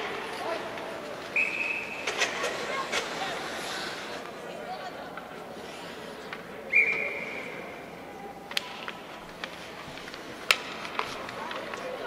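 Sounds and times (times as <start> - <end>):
hockey sticks clacking on puck: 0.0 - 4.4, 5.1 - 7.6, 8.3 - 12.0
whistle blown: 1.4 - 2.0, 6.7 - 7.4.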